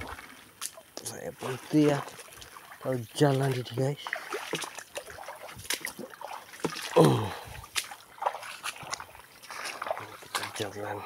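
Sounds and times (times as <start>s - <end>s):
footsteps splashing through water: 0.0s - 11.0s
person's short falling vocal sound: 7.0s - 7.4s.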